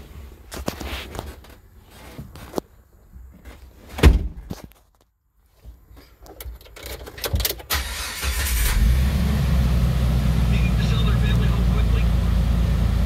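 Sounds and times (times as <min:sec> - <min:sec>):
loud thump: 0:04.0 - 0:04.5
car engine cranking: 0:06.7 - 0:13.0.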